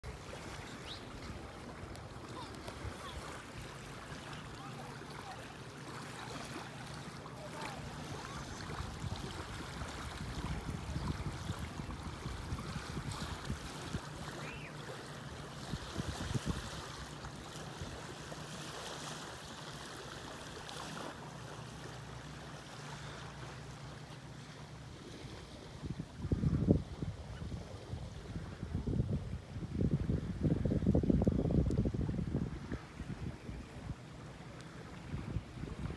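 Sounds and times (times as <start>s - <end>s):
small waves lapping on shore: 0.0s - 35.9s
wind rumbling on microphone: 7.7s - 14.7s, 15.6s - 18.0s, 25.0s - 35.9s.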